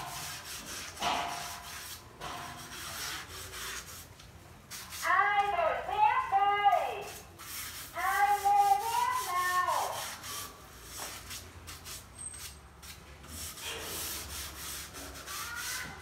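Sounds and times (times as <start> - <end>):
sanding block rasping on wood: 0.0 - 4.1, 7.1 - 12.1, 12.9 - 16.0.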